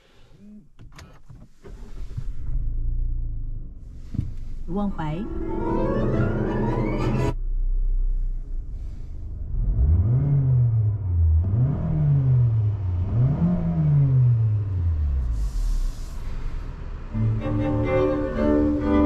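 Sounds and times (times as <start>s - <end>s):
car engine idling and revving: 0.0s - 19.0s
short hiss: 15.4s - 16.7s.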